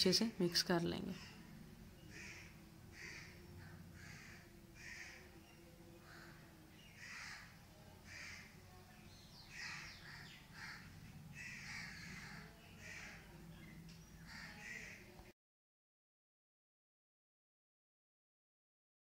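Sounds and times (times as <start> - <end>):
faint crows cawing: 1.0 - 8.6, 9.4 - 15.3.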